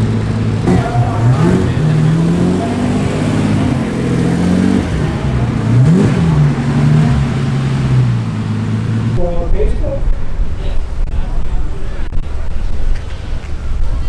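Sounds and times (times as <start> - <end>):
engine rev blip: 0.0 - 9.3
car engine pulling away: 0.0 - 14.0.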